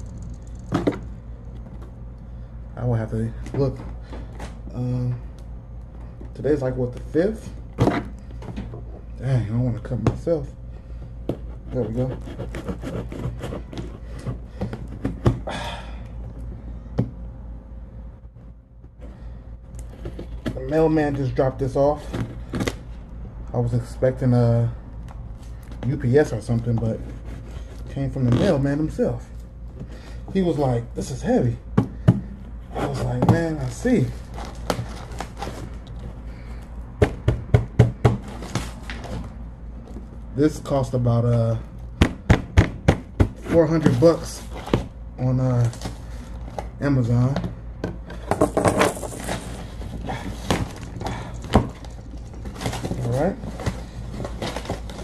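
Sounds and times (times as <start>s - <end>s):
cardboard rustle: 32.7s - 36.2s, 48.6s - 55.0s
taps and knocks on cardboard: 37.0s - 38.7s, 42.0s - 43.6s.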